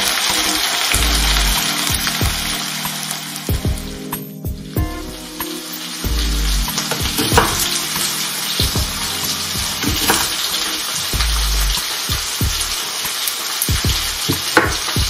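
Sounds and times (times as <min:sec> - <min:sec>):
vegetables sizzling in a pan: 0:08.2 - 0:15.0.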